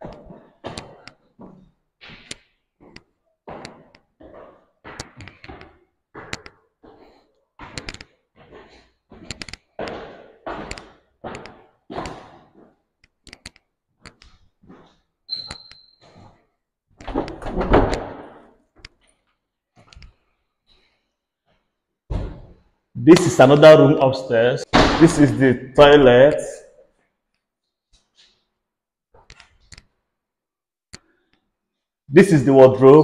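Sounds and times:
footsteps on tiled stairs: 0:00.0 - 0:20.3.

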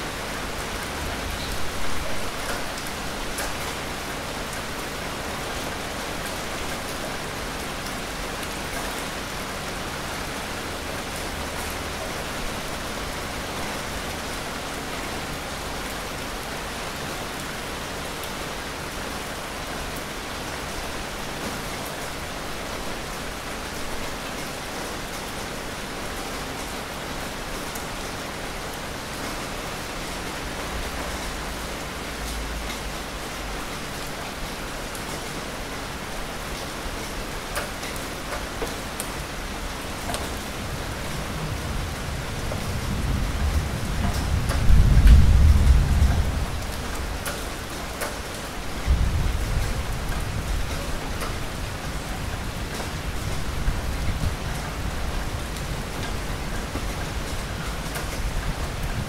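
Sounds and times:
steady rain hiss: 0:00.0 - 0:59.0
raindrops striking: 0:35.9 - 0:59.0.

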